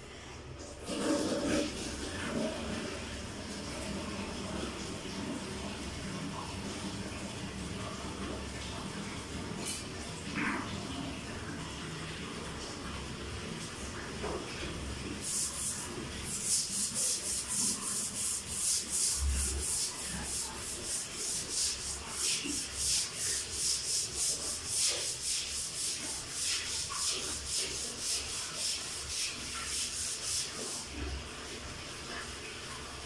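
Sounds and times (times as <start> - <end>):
brush scrubbing floor: 0.8 - 3.0, 14.2 - 32.5.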